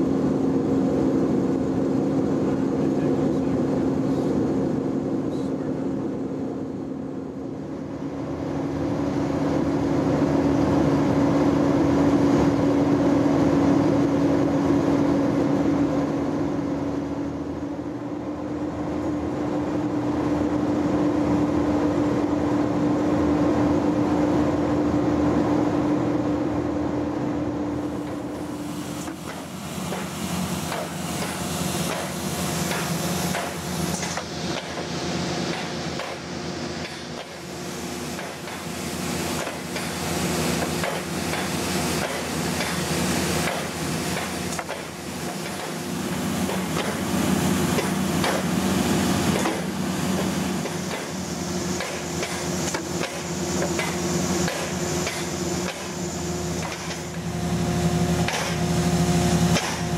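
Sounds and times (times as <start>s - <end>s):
truck machinery humming: 27.7s - 59.9s.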